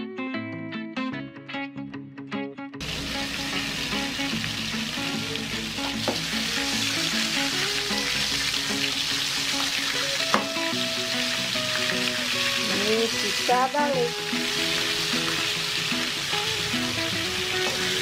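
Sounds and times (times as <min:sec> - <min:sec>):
chicken deep-frying in oil: 0:02.8 - 0:18.0
metal spatula knocking on pan: 0:06.0 - 0:06.3, 0:10.3 - 0:10.6.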